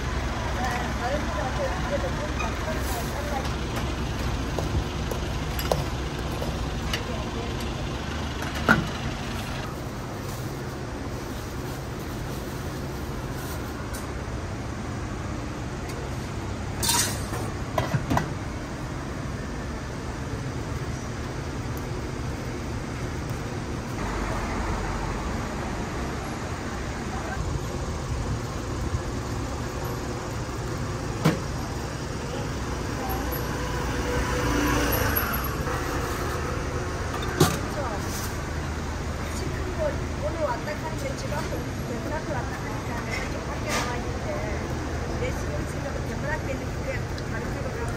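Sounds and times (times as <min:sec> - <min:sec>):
busy market hum: 0:00.0 - 0:47.9
utensils clinking on dishes: 0:16.8 - 0:17.5.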